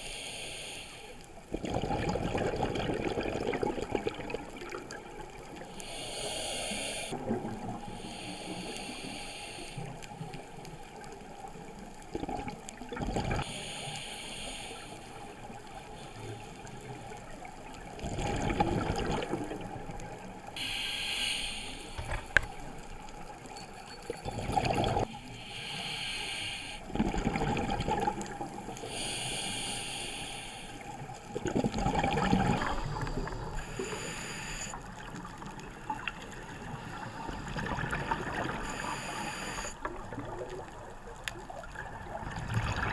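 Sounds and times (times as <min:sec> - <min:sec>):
underwater hiss: 0:00.0 - 0:01.4, 0:05.0 - 0:11.9, 0:13.3 - 0:17.4, 0:20.2 - 0:23.3, 0:24.9 - 0:26.9, 0:27.7 - 0:31.3, 0:32.3 - 0:35.5, 0:36.1 - 0:39.9
exhaled bubbles rushing: 0:01.5 - 0:05.5, 0:17.9 - 0:20.0, 0:24.2 - 0:25.1, 0:26.9 - 0:28.7, 0:31.3 - 0:33.6, 0:39.8 - 0:41.0, 0:41.6 - 0:42.9.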